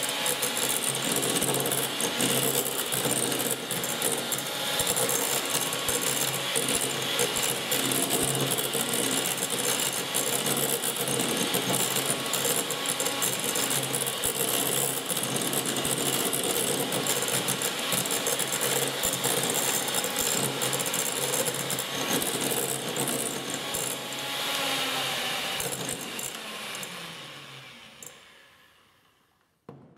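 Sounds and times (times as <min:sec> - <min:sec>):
hand mixer motor humming: 0:00.0 - 0:28.4
beaters rattling against glass bowl: 0:00.4 - 0:24.0.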